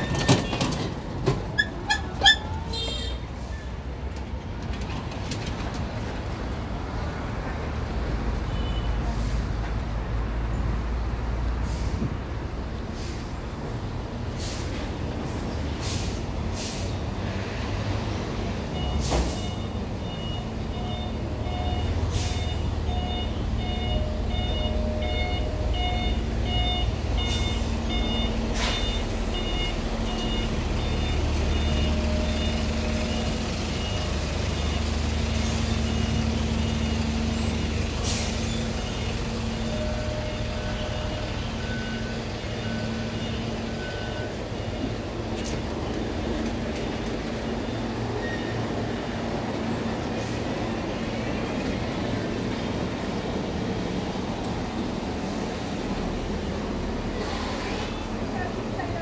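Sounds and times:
truck engines running: 0.0s - 59.0s
reversing beepers: 18.6s - 46.2s, 47.0s - 49.0s
lower reversing beeper: 18.8s - 45.2s.

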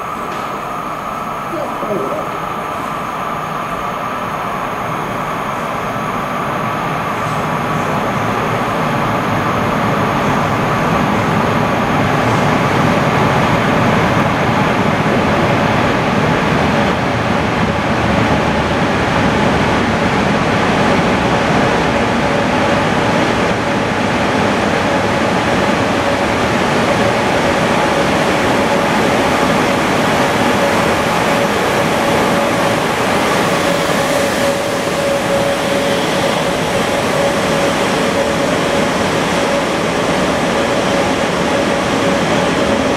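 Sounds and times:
train rolling rumble: 0.0s - 42.9s
steady whine: 19.5s - 42.9s.

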